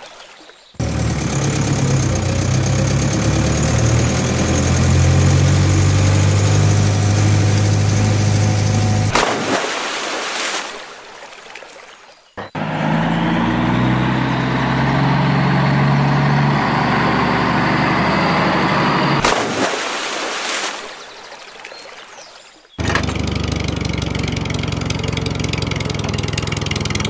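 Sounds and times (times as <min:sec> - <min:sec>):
truck engine running: 0:00.8 - 0:09.6, 0:12.4 - 0:19.7, 0:22.8 - 0:27.0
toy vehicle splashing into puddle: 0:09.1 - 0:12.2, 0:19.2 - 0:23.4.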